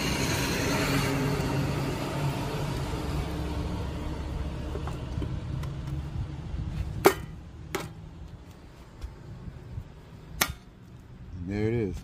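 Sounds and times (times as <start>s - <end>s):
passing motor vehicle rumble: 0.0s - 10.3s.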